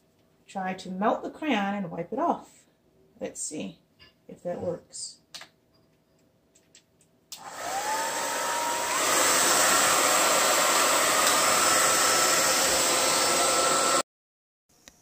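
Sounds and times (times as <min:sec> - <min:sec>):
hair dryer running: 0:07.3 - 0:14.1.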